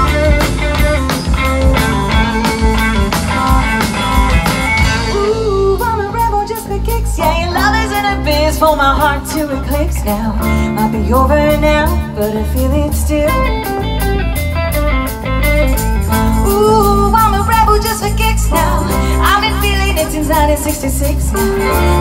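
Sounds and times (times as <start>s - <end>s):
drum beats: 0.0s - 9.5s, 10.8s - 22.0s
bass line: 0.0s - 22.0s
live band playing: 0.0s - 22.0s
woman singing: 4.9s - 13.9s, 16.3s - 22.0s.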